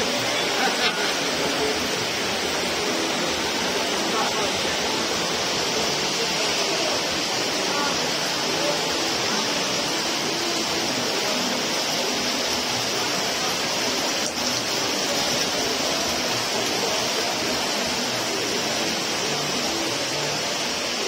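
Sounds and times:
heavy rain pouring: 0.0 - 21.0.

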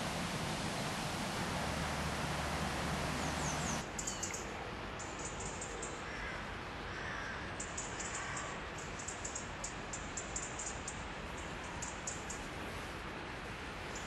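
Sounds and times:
flowing river water: 0.0 - 3.9.

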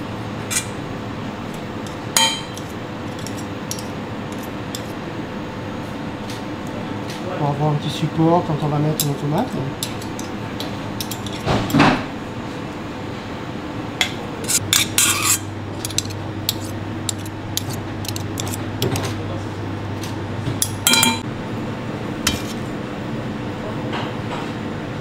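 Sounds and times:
spoon scraping metal bowl: 14.4 - 19.1
bowl ringing: 20.9 - 21.2.

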